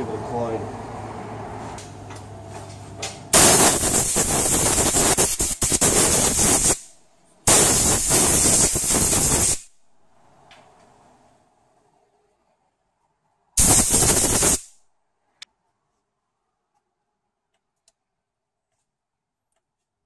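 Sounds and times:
compressed air blowgun hissing: 3.4s - 6.9s, 7.5s - 9.7s, 13.6s - 14.7s.

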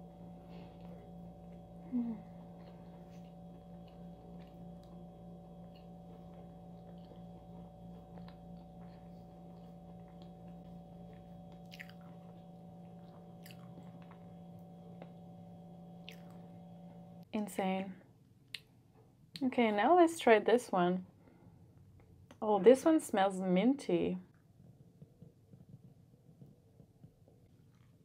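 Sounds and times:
low hum: 0.0s - 18.3s
closed-mouth chewing: 2.2s - 15.2s, 16.0s - 16.4s
wet mouth clicks: 11.6s - 12.1s.

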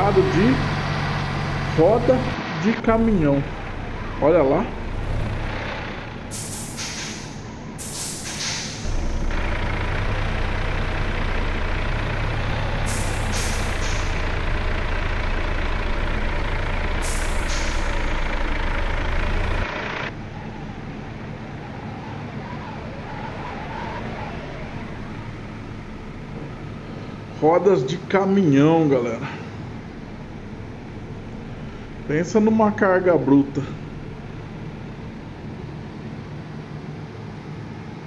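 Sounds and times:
diesel truck engine droning: 0.0s - 38.0s
air brake hisses: 6.3s - 8.9s, 12.9s - 14.2s, 17.0s - 18.0s.

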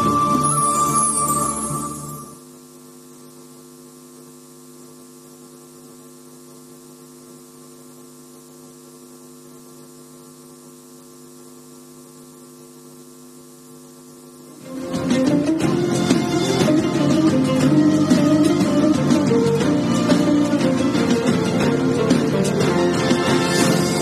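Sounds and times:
music: 0.0s - 2.4s, 14.5s - 24.0s
electrical mains hum: 0.0s - 24.0s.

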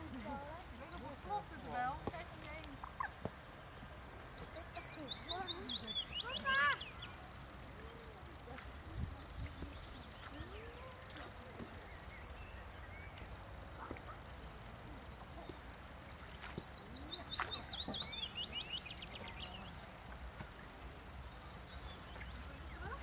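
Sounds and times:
songbird singing falling notes: 1.6s - 7.2s, 8.3s - 19.7s
faint bird chirps: 2.7s - 19.8s.

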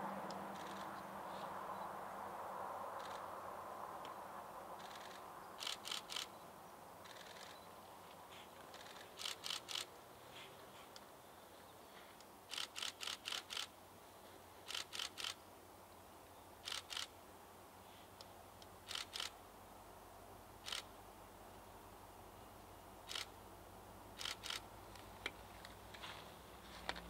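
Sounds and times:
faint steady background noise: 0.0s - 27.0s
sharp clicks: 8.7s - 9.9s, 14.7s - 15.4s.

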